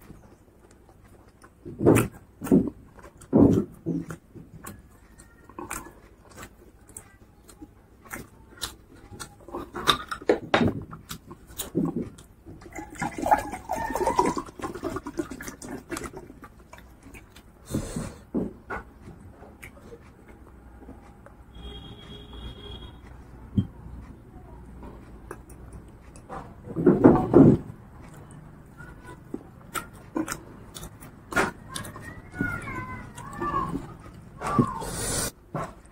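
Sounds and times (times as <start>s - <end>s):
person chewing food: 0.0s - 35.9s.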